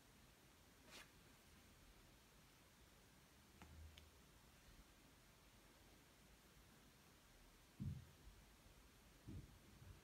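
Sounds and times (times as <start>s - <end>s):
faint low thuds: 7.7s - 8.4s, 9.2s - 10.0s.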